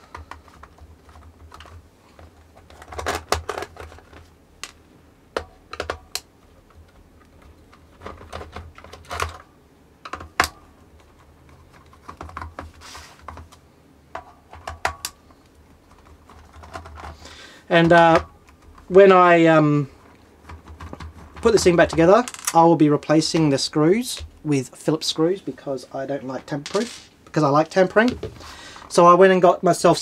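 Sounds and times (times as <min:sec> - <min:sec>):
plastic case handled: 0:00.0 - 0:19.0, 0:20.2 - 0:22.6.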